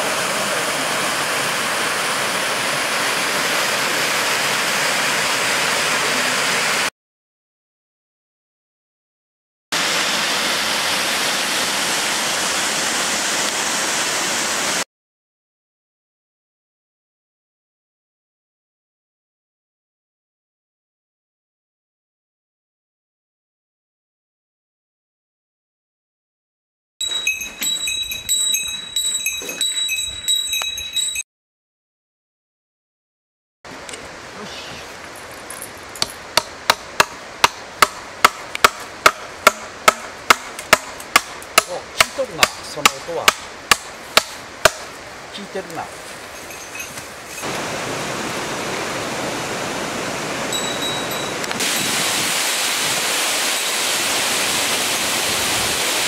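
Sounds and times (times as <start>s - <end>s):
waterfall rushing: 0.0s - 6.9s, 9.8s - 14.8s, 33.7s - 38.2s, 41.4s - 56.0s
hammer striking wooden planks: 36.0s - 44.9s.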